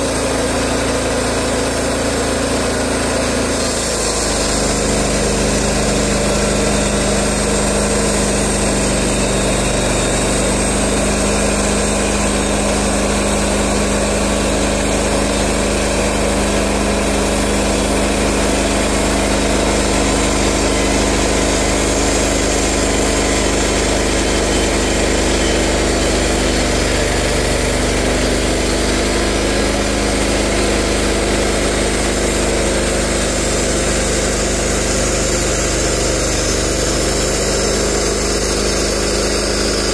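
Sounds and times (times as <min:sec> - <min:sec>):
band sawmill cutting log: 0:00.0 - 0:39.9.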